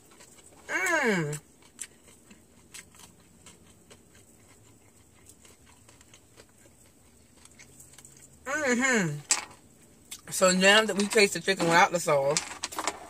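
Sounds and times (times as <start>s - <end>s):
chewing crispy chicken: 0.0s - 8.5s.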